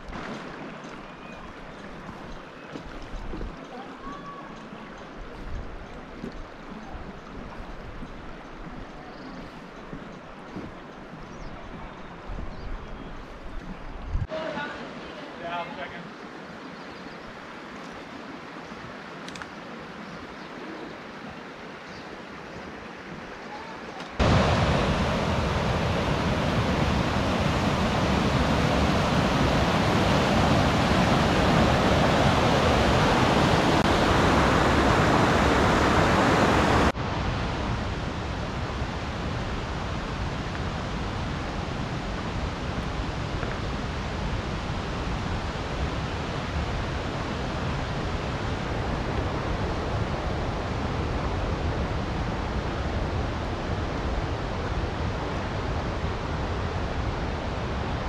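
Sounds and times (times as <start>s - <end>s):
white-water creek rushing: 14.3s - 58.0s.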